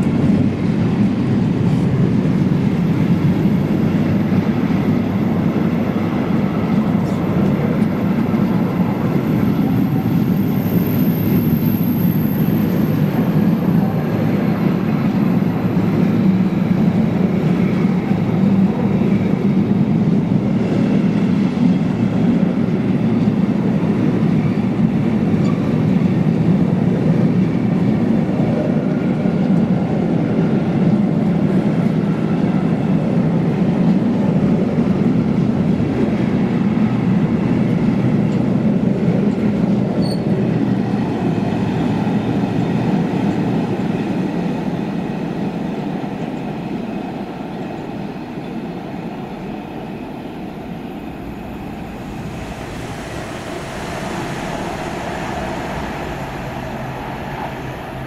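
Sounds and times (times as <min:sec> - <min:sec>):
freight train wheels rumbling on rail: 0:00.0 - 0:58.0.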